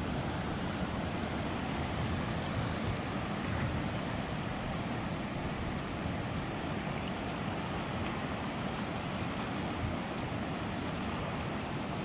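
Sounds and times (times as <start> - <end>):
wind on microphone: 0.0 - 6.9
river rushing: 0.0 - 12.0.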